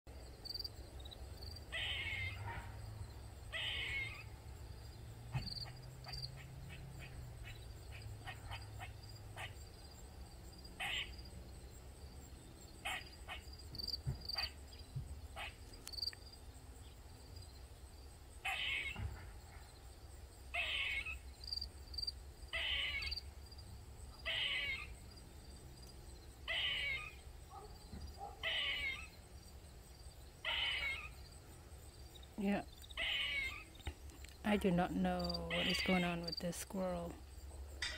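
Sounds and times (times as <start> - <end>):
squirrel crying: 1.7 - 2.5, 3.5 - 4.3, 10.8 - 11.2, 12.8 - 13.5, 18.4 - 19.1, 20.5 - 21.3, 22.5 - 23.3, 24.2 - 25.0, 26.5 - 27.3, 28.3 - 29.2, 30.4 - 31.2, 32.9 - 33.8, 35.2 - 36.2.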